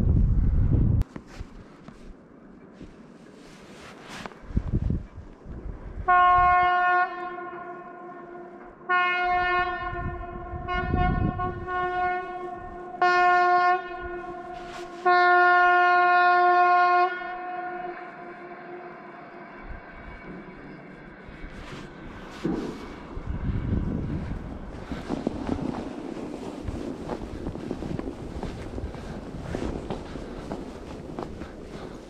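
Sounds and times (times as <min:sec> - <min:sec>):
low rumble: 0:00.0 - 0:01.0, 0:19.7 - 0:31.8
train horn blasts: 0:06.0 - 0:19.5.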